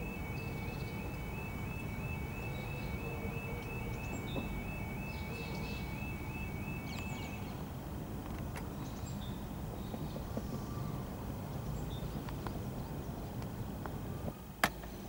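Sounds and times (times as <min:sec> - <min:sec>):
level crossing alarm: 0:00.0 - 0:08.0
birds chirping: 0:00.0 - 0:13.6.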